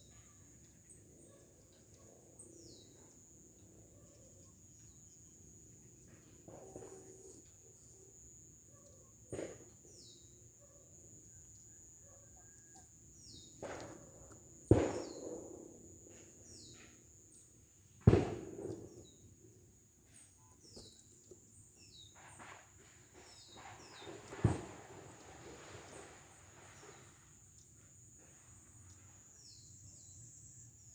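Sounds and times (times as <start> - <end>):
high insect drone: 0.0 - 30.9
bird chirps: 20.1 - 22.5.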